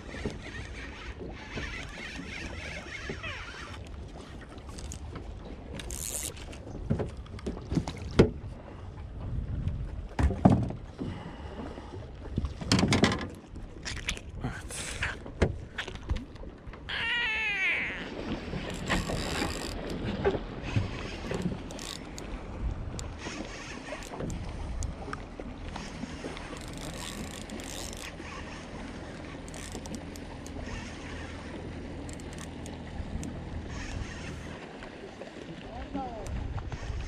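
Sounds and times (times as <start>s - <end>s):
cat meowing: 16.9s - 18.1s.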